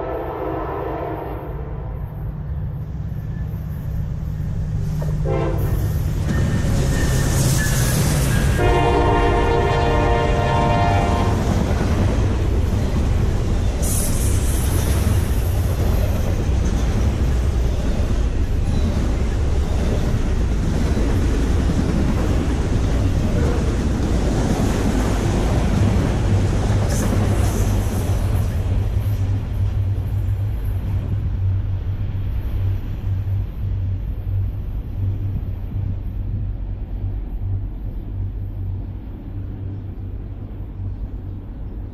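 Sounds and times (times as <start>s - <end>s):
locomotive horn: 0.0s - 2.1s, 5.2s - 5.9s, 8.5s - 11.6s
freight train wheels rumbling: 0.0s - 41.9s
high hiss: 12.2s - 19.4s.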